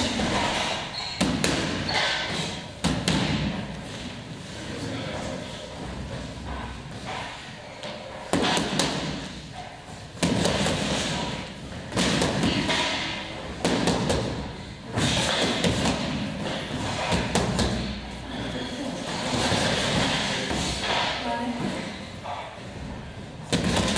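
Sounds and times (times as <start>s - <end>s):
boxing gloves hitting mitts: 0.0s - 4.1s, 8.2s - 18.1s, 23.4s - 23.9s.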